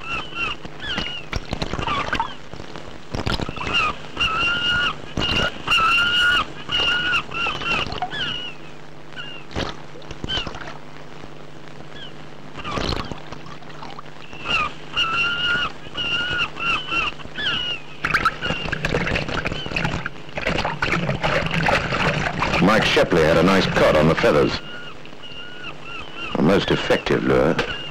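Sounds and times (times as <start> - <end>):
seabirds calling: 0.0 - 27.9
steady low hum: 0.0 - 27.9
fish splashing in water: 18.0 - 22.6.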